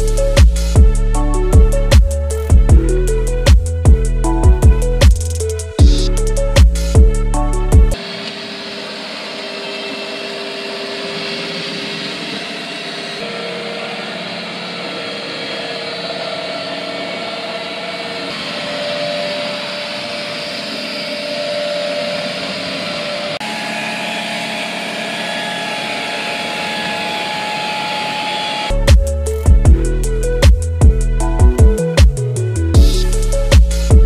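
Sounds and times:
robot vacuum fan whine: 0:08.0 - 0:28.9.

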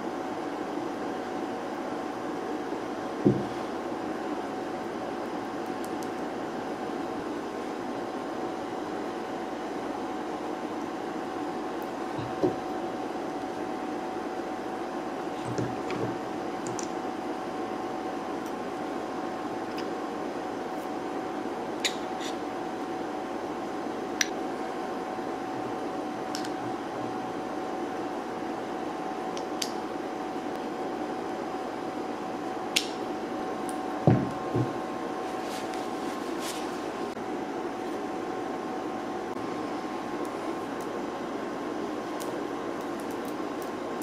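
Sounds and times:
steady hum: 0:00.0 - 0:44.0
heavier thump: 0:03.2 - 0:03.6, 0:34.1 - 0:34.8.

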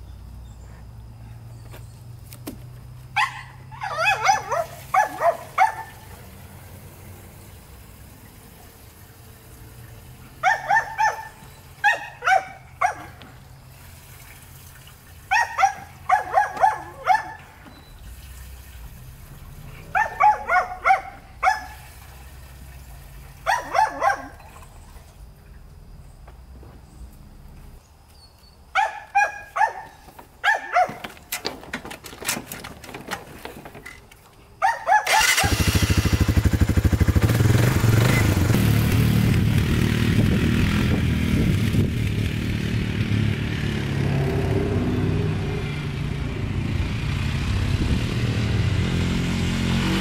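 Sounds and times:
dog barking: 0:03.2 - 0:06.1, 0:10.4 - 0:13.2, 0:15.3 - 0:17.6, 0:19.8 - 0:21.8, 0:23.4 - 0:24.5, 0:28.8 - 0:31.1, 0:34.6 - 0:35.5.

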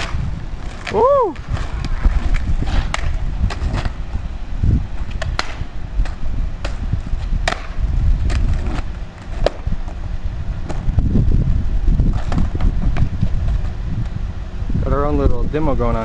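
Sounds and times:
skateboard clacking on asphalt: 0:00.0 - 0:04.2, 0:04.9 - 0:10.9, 0:12.0 - 0:14.2
low rumble: 0:00.0 - 0:16.0.

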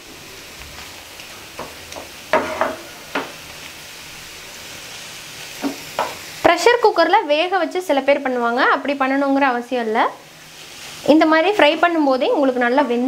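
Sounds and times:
meat sizzling in a frying pan: 0:00.0 - 0:13.0.

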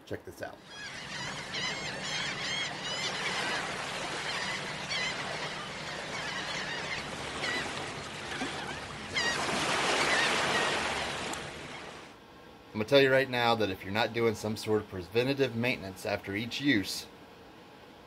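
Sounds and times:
gulls calling: 0:00.4 - 0:12.2
surf breaking: 0:03.0 - 0:12.1
wave washing in: 0:03.1 - 0:12.2.

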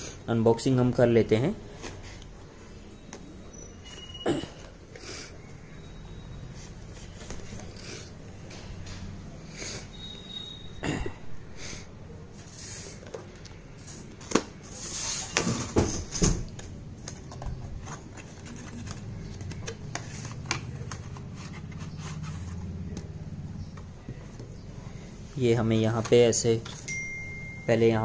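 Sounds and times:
cardboard packaging scraping and rustling: 0:14.2 - 0:16.1, 0:17.2 - 0:22.8.

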